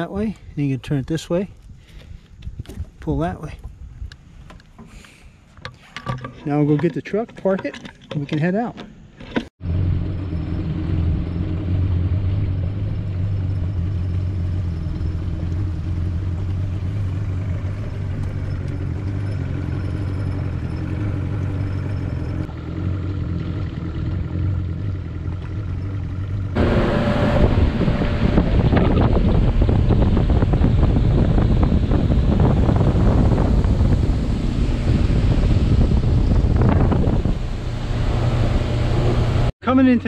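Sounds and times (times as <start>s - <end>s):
outboard motor running: 9.7s - 39.5s
rush of wind and water: 26.6s - 39.5s.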